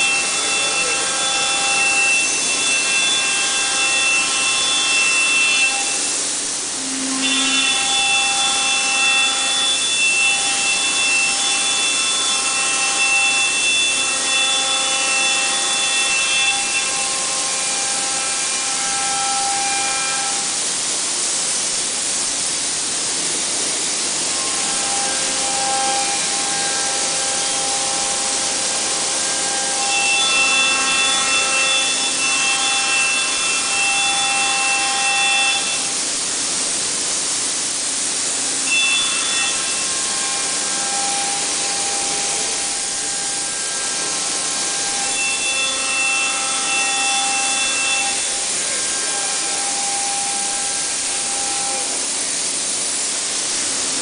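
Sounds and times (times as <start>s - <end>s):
dust extraction hiss: 0.0s - 54.0s
router spindle whine: 0.0s - 54.0s.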